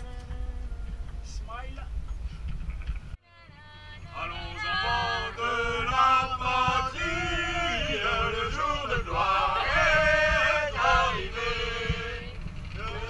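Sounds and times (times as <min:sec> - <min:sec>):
wind rumble on microphone: 0:00.0 - 0:13.0
group singing in held notes: 0:04.0 - 0:13.0.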